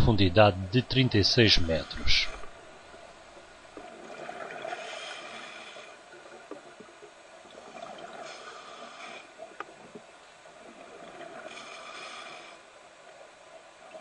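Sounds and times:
faint clicks: 0:09.4 - 0:10.1.

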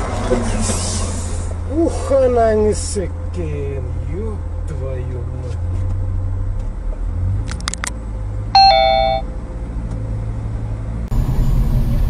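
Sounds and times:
road noise: 0:00.0 - 0:12.0
car cabin hum: 0:08.6 - 0:09.2
two-note electronic chime: 0:08.6 - 0:09.2.

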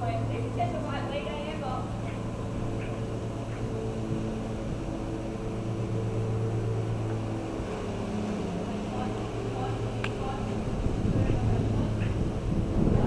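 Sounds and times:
motor humming: 0:00.0 - 0:13.0.

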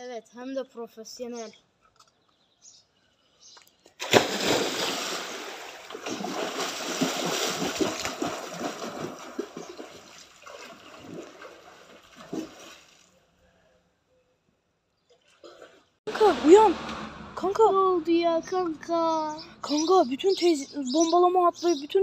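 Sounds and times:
splash of jumping into pool: 0:04.0 - 0:13.1
water splashing from swimming: 0:04.0 - 0:13.1, 0:15.2 - 0:17.3.

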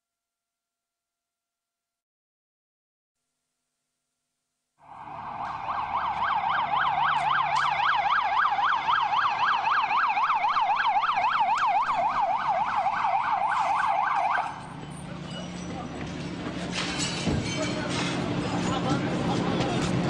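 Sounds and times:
ambulance siren yelping: 0:04.8 - 0:14.8.

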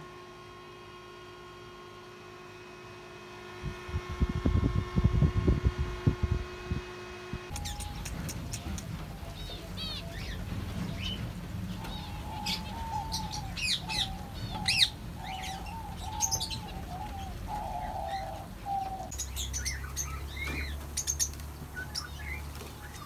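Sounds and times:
wings fluttering: 0:03.5 - 0:23.0
doves cooing: 0:07.5 - 0:23.0
finches chirping: 0:07.5 - 0:23.0.

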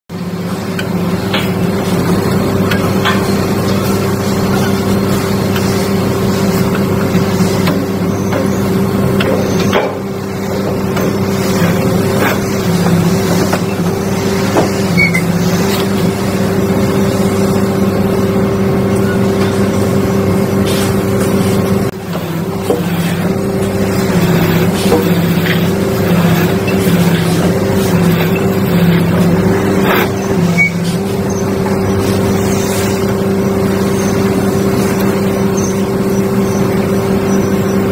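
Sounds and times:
hydraulic power unit humming: 0:00.1 - 0:37.9.

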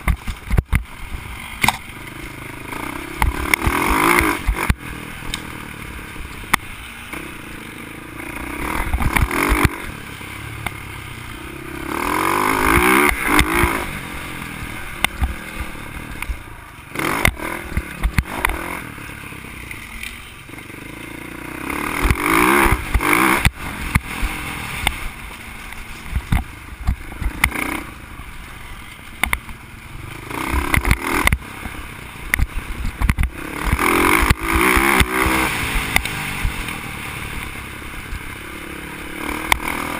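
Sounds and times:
bike knocking and clattering: 0:00.0 - 0:00.9
dirt bike engine revving: 0:00.0 - 0:39.9.

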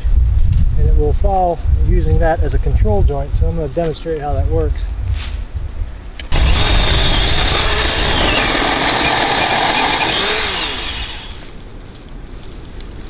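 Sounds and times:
electric chainsaw cutting wood: 0:06.3 - 0:11.5.

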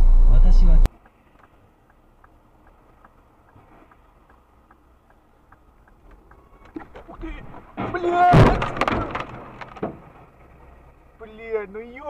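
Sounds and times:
low road rumble: 0:00.0 - 0:12.0
car turn signal ticking: 0:00.8 - 0:06.9.

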